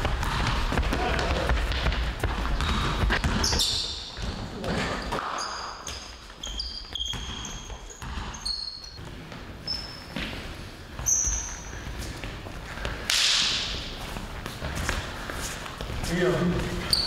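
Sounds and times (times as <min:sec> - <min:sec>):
ball bouncing and footsteps: 0:00.0 - 0:17.0
shoes squeaking on floor: 0:02.4 - 0:12.8, 0:13.8 - 0:17.0.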